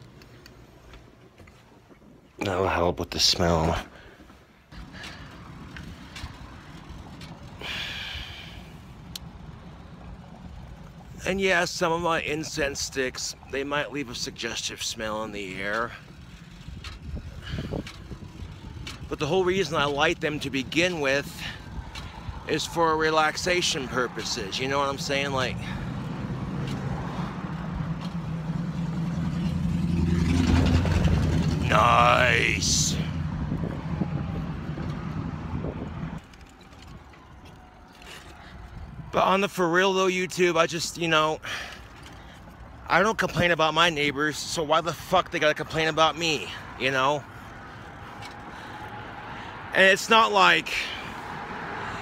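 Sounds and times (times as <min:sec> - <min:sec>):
road noise: 0:00.0 - 0:52.0
vehicle engine humming: 0:00.0 - 0:52.0
wind rumbling on microphone: 0:15.8 - 0:23.6, 0:30.4 - 0:37.8.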